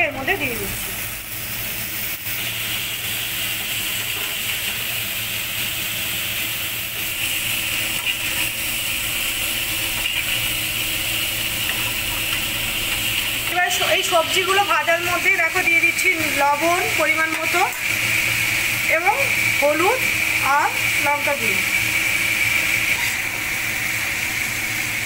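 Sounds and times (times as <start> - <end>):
vegetables sizzling in hot oil: 0.0 - 25.0
spatula scraping a pan: 22.8 - 23.3.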